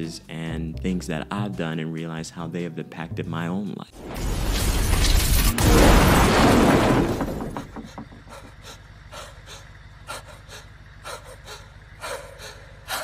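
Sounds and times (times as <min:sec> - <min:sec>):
loud crash: 0:04.0 - 0:07.8
man panting frightened breaths: 0:07.8 - 0:13.0.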